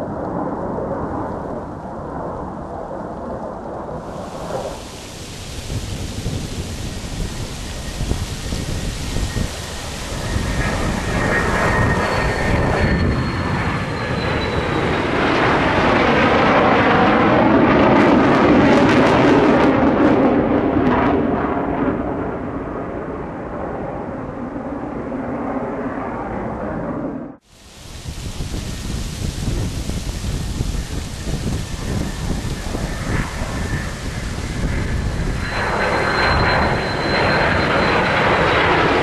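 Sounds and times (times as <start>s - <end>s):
jet engine high whine: 0.0s - 39.0s
jet rush and low rumble: 0.0s - 39.0s.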